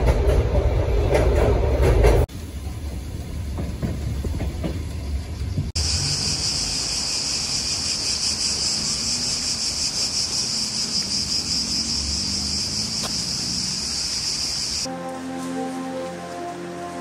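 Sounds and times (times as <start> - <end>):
insects singing: 5.8 - 14.9.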